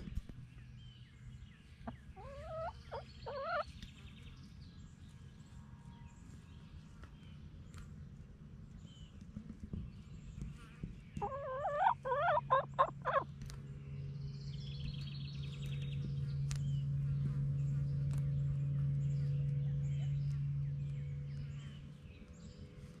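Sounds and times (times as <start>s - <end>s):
low hum: 0.0s - 23.0s
chicken squawking: 1.9s - 3.7s, 11.2s - 13.2s
chicken trill: 1.9s - 3.7s, 11.2s - 13.3s.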